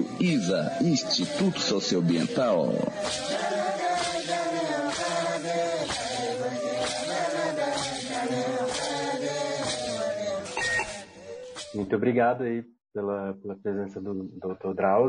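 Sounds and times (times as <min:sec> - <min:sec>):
vocal chanting in long notes: 0:00.0 - 0:11.9.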